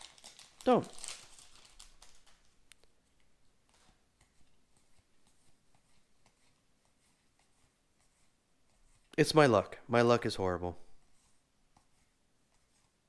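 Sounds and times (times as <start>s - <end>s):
trading cards rustling: 0.0s - 9.2s.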